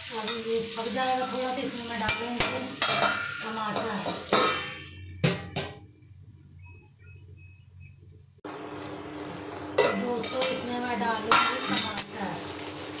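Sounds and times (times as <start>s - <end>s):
frying sizzle: 0.0s - 6.5s, 8.5s - 13.0s
metal lid clinking: 2.1s - 5.8s.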